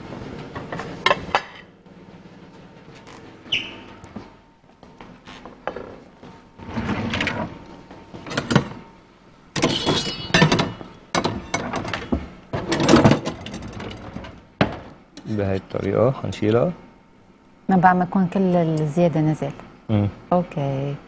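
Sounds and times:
plates and cookware clattering: 0.6 - 1.7, 9.6 - 15.0.

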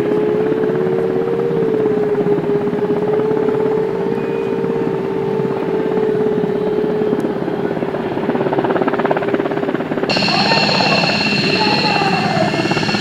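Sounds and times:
helicopter rotor chop: 4.7 - 13.0
turbine whine: 9.9 - 13.0.

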